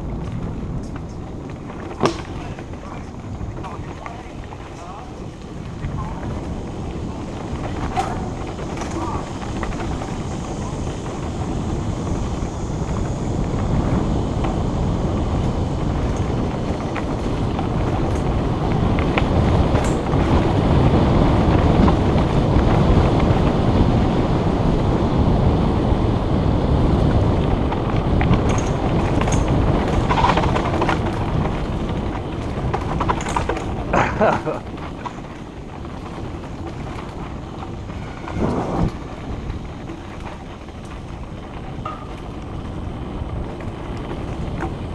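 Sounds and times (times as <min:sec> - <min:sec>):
bike clicks and rattles: 0:00.0 - 0:44.9
mountain bike rolling on dirt: 0:00.0 - 0:44.9
wind buffeting microphone: 0:00.0 - 0:44.9.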